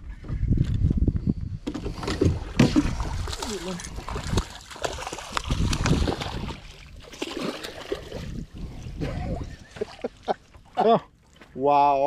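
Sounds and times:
wind rumble on microphone: 0.0s - 7.0s, 7.8s - 9.8s
water splashing and dripping: 2.0s - 11.5s.

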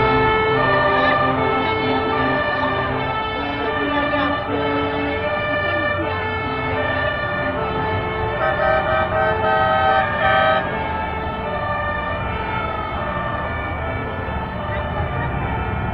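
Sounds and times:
fire engine sirens wailing: 0.0s - 15.9s
rumble of passing vehicles: 0.0s - 15.9s
two-tone horn: 8.3s - 10.9s.

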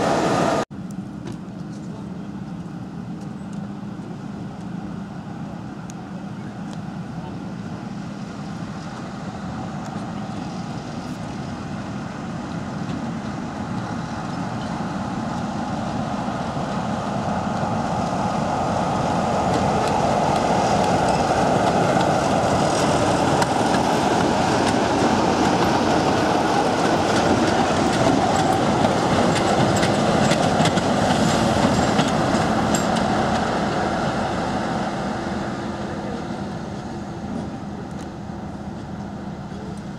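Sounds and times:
diesel locomotive engine: 0.0s - 39.9s
wheels clicking over rail joints: 18.9s - 34.2s.

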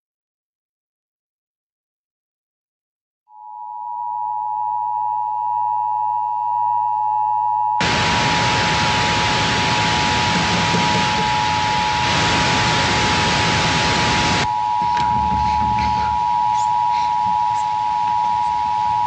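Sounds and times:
steady electronic tone: 7.8s - 19.0s
television static hiss: 7.8s - 19.0s.

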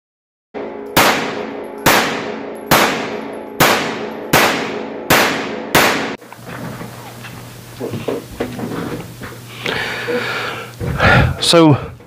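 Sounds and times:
pistol shots indoors: 0.8s - 6.2s.

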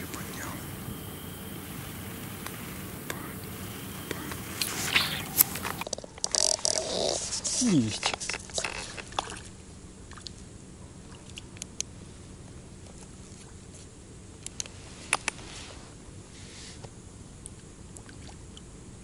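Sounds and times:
faint hiss: 0.0s - 5.9s, 6.6s - 9.1s, 11.9s - 17.2s
sharp clicks: 0.0s - 6.8s.

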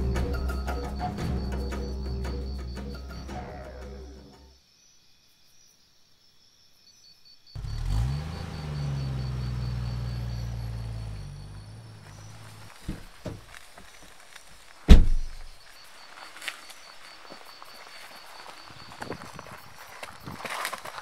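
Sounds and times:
high insect chirping: 0.0s - 21.0s
low engine-like rumble: 7.6s - 13.6s
soft knocks: 12.8s - 13.5s.

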